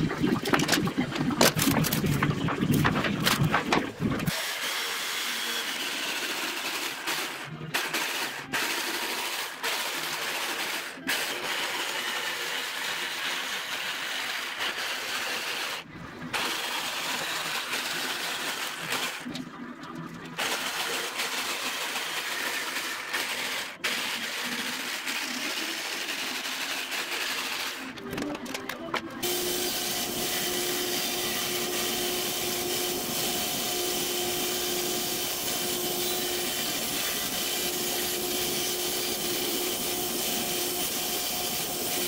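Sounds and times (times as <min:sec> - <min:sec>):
jigsaw cutting hardwood: 0:02.8 - 0:19.3, 0:20.4 - 0:28.0, 0:29.2 - 0:42.0.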